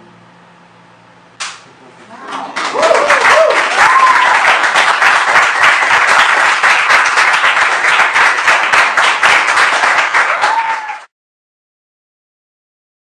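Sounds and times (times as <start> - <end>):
audience applauding: 2.2 - 11.1.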